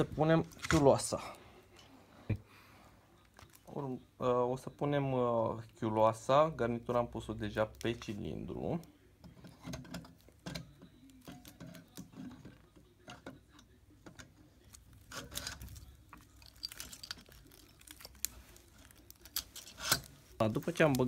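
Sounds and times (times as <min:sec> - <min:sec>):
metal clinks and rattles: 0:15.1 - 0:18.3.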